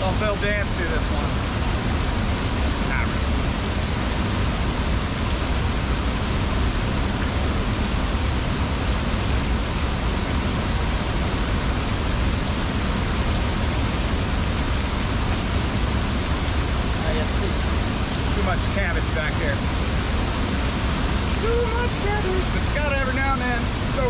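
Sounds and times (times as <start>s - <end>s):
waterfall rushing into pool: 0.0s - 24.0s.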